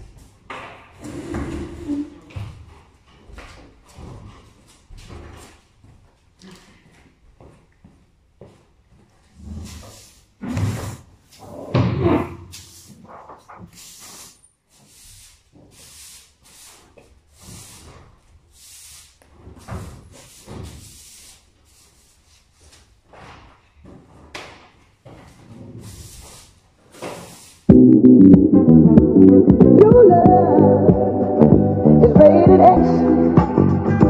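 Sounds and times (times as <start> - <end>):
straw broom sweeping floor: 12.5 - 22.9, 25.7 - 27.7.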